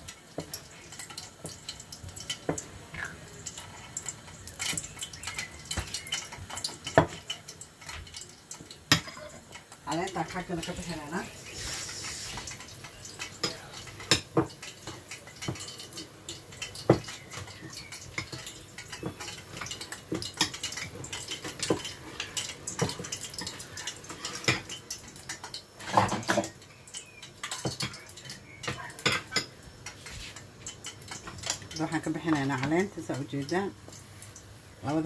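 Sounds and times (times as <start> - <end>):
syrup boiling in a pot: 0.0 - 35.0
metal knocking against a pot: 4.7 - 7.3, 16.7 - 23.6.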